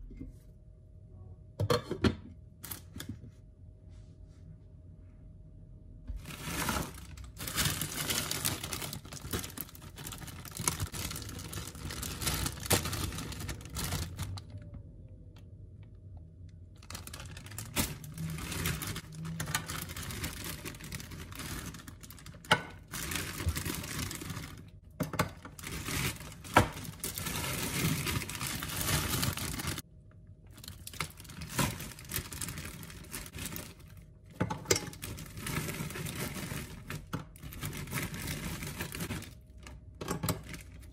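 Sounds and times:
plastic bag crinkling: 6.2s - 14.8s, 16.7s - 24.8s, 25.4s - 29.8s, 30.5s - 34.2s, 34.8s - 40.9s.

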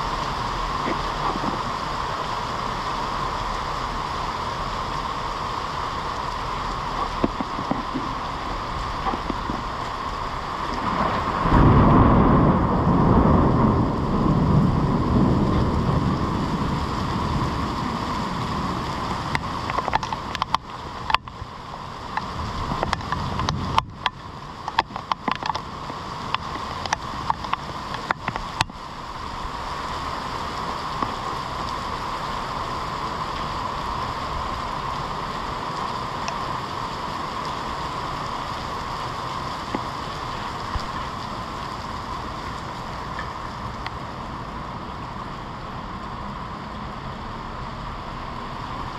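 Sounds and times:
heavy rain on pavement: 0.0s - 48.9s
thunder rumble: 6.8s - 32.0s.

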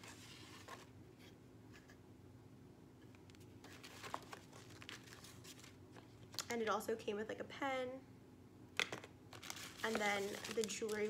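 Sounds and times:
paper packaging rustling and tapping: 3.2s - 6.5s, 8.8s - 11.0s.

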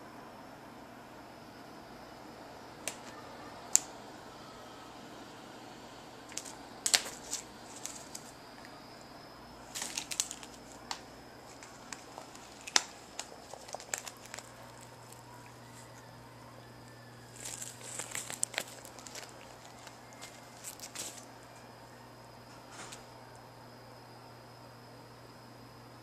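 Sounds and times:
cat scratching at fabric: 6.3s - 8.4s, 9.6s - 15.9s, 17.2s - 21.3s
fabric rustling: 9.6s - 16.0s, 17.2s - 21.4s.

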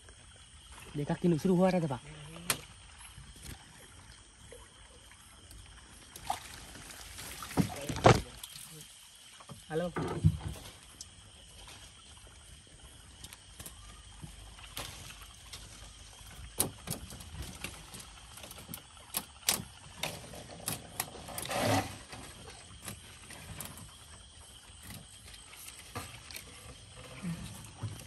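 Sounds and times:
clicks and knocks of net handling: 7.3s - 8.6s, 13.2s - 21.5s
rustling scrape: 21.2s - 22.4s.

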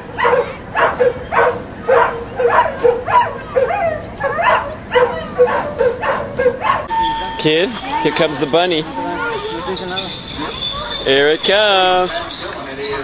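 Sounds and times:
dogs yelping and whining: 0.1s - 11.5s, 12.1s - 13.0s.

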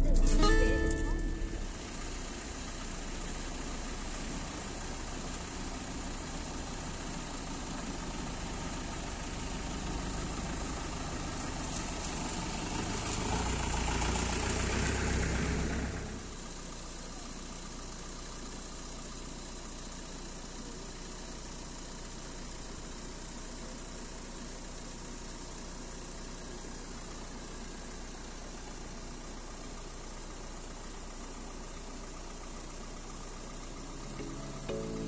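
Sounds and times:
jeep engine running: 0.0s - 35.0s.

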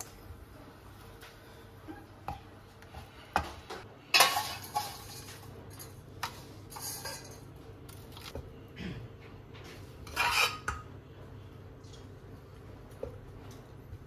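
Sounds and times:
pan scraping over plate: 10.0s - 10.7s.

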